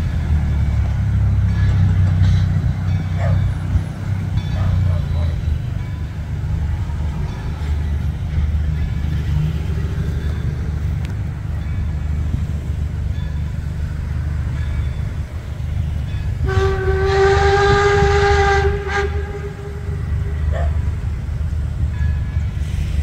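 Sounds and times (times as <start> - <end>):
steam whistle blast: 16.4 - 20.5.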